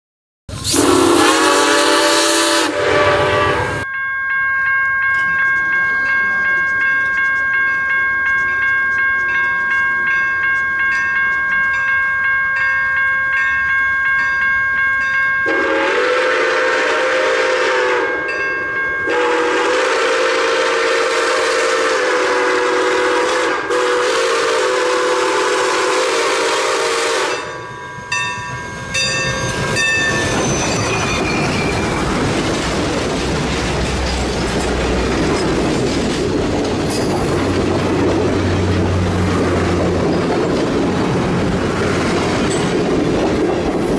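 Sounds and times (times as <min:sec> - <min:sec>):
steam locomotive chugging: 0:00.5 - 0:03.9, 0:15.1 - 0:43.9
steam locomotive whistle: 0:00.5 - 0:03.9, 0:15.5 - 0:18.5, 0:19.1 - 0:27.8.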